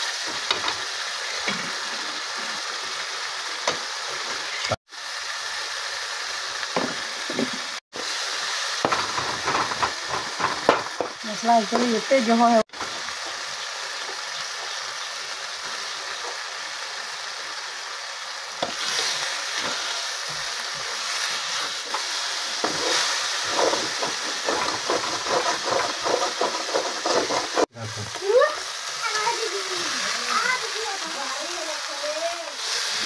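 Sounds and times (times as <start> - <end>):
onion paste sizzling in pan: 0.0 - 33.0
metal spatula scraping pan: 20.8 - 27.7.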